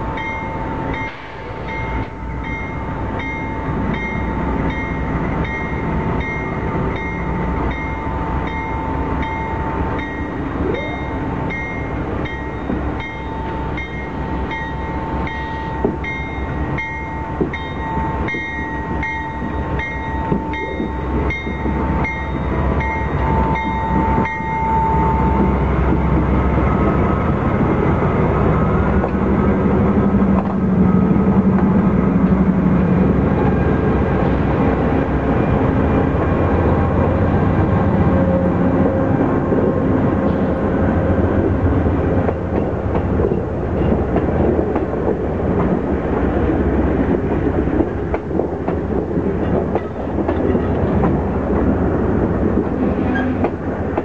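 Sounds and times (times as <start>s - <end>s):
locomotive bell ringing: 0.0s - 26.3s
diesel locomotive engine: 0.0s - 54.0s.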